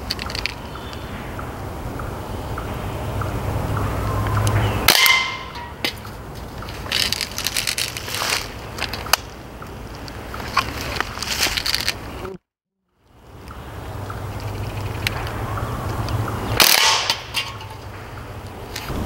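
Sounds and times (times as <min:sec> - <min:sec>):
air rifle shots popping: 0:16.6 - 0:17.6.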